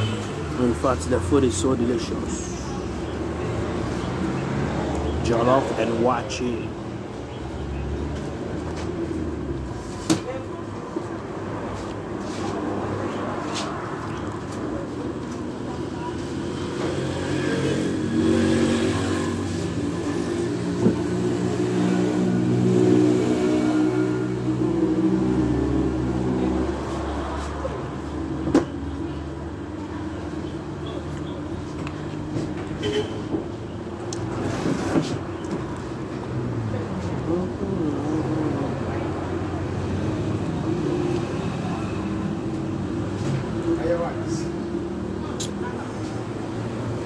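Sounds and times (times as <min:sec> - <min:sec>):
low traffic rumble: 0:00.0 - 0:47.0
background voices: 0:36.1 - 0:43.8.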